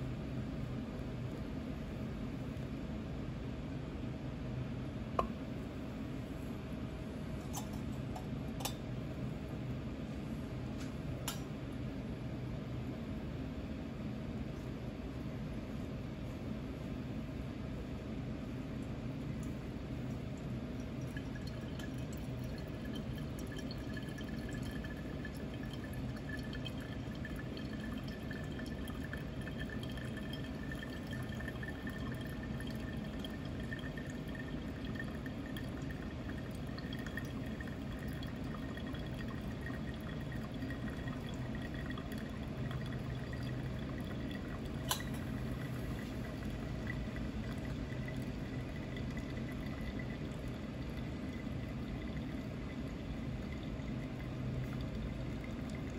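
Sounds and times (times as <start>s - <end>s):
low room hum: 0.0s - 55.9s
coffee dripping into glass: 19.4s - 55.9s.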